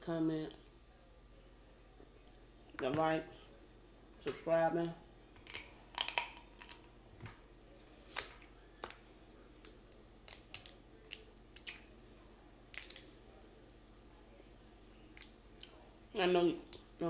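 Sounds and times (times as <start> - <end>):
crab shells cracking: 5.4 - 6.9, 8.0 - 9.0, 10.2 - 11.9, 12.7 - 13.1, 15.1 - 15.8.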